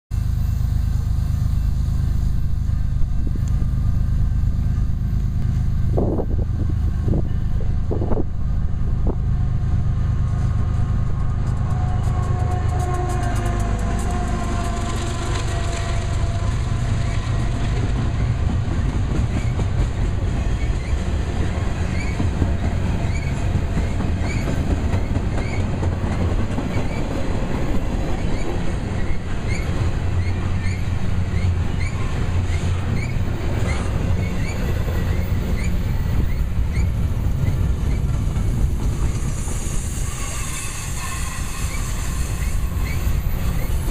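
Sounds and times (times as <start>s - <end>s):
diesel locomotive engine passing: 0.1s - 43.9s
wheels clicking over rail joints: 11.1s - 39.4s.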